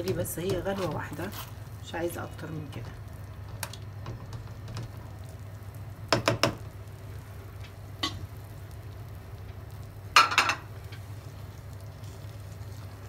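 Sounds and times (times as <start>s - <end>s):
low steady hum: 0.0s - 13.0s
utensils knocking on metal pan: 6.1s - 6.6s, 10.2s - 10.6s.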